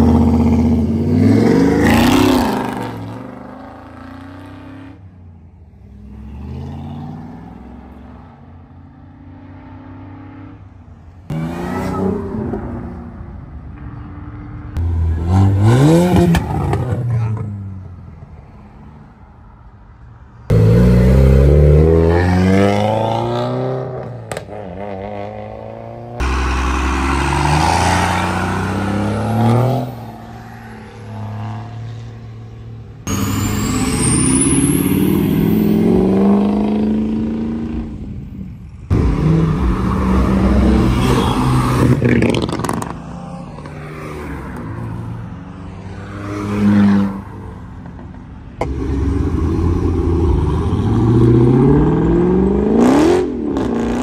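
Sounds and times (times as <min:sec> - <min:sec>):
cars accelerating hard: 0:20.5 - 0:32.3, 0:38.9 - 0:47.3, 0:48.6 - 0:54.0.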